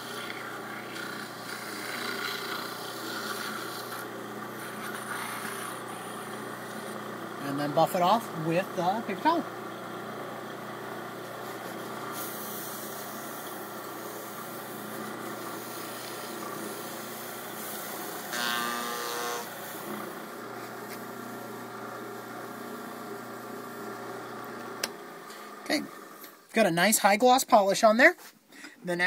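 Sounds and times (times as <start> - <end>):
wood lathe running: 0.0 - 26.1
paper towel rubbing on wood: 11.2 - 12.4.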